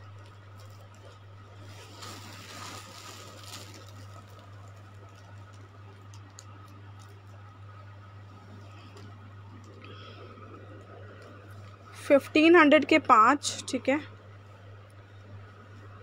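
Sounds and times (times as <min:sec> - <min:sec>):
low hum: 0:00.0 - 0:16.0
faint rustling: 0:00.6 - 0:05.2.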